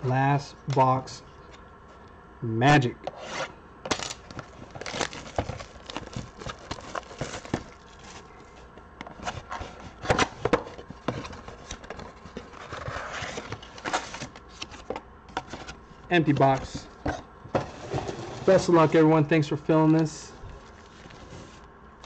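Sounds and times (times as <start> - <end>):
cardboard rubbing and rustling: 3.1 - 19.1, 20.4 - 21.7.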